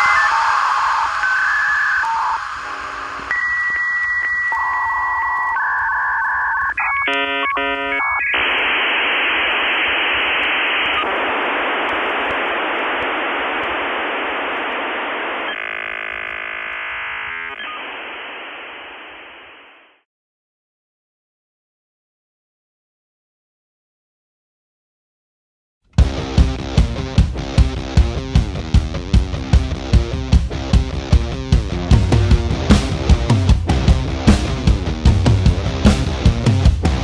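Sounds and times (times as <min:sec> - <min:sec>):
telephone line beeping tones: 0:00.0 - 0:19.1
rapidly switching tones: 0:00.0 - 0:19.3
telephone line hiss: 0:00.0 - 0:20.0.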